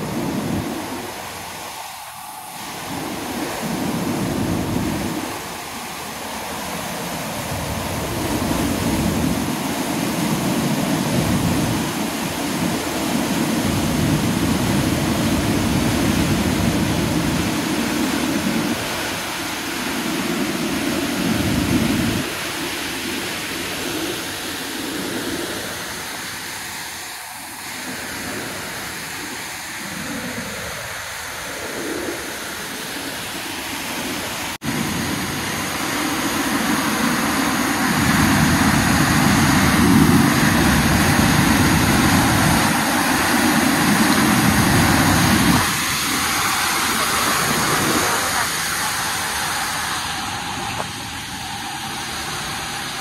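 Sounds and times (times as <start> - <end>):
floodwater rushing over a weir: 0.0 - 53.0.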